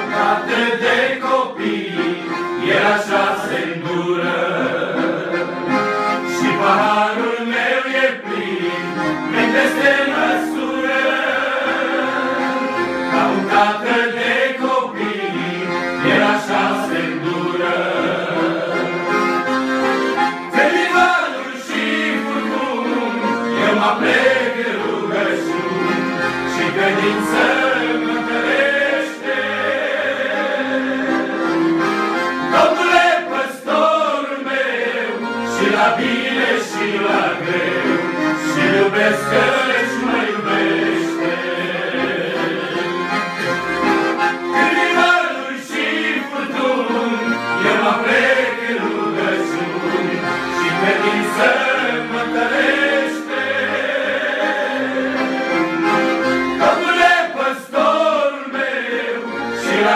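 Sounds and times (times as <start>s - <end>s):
men singing along: 0.0s - 5.6s, 6.3s - 19.1s, 20.5s - 31.7s, 32.5s - 43.1s, 44.5s - 55.5s, 56.6s - 59.9s
accordion playing lively tune: 0.0s - 59.9s.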